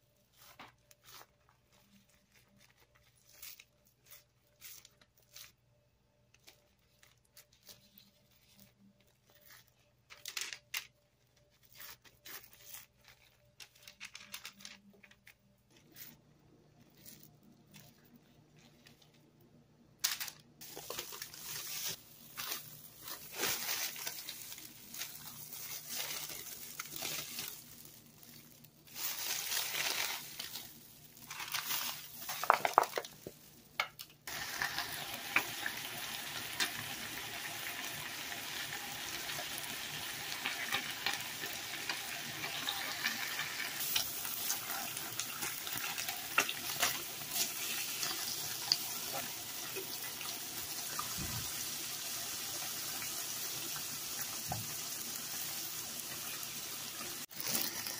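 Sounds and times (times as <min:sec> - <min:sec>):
plastic and paper crinkling: 0:00.0 - 0:35.5, 0:40.4 - 0:50.0
patties sizzling on a griddle: 0:34.3 - 0:57.9.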